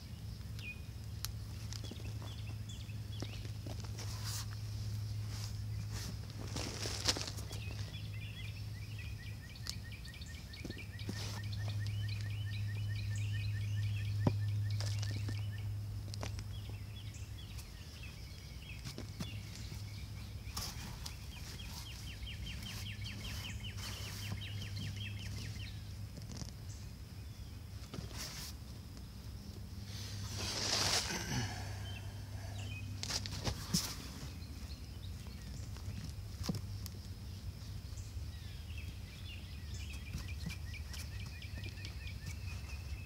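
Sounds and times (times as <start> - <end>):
steady low hum: 0.0 - 43.0
hand scraping through potting soil: 3.2 - 8.3, 10.6 - 12.4, 17.4 - 26.6, 27.8 - 28.8, 29.8 - 36.6.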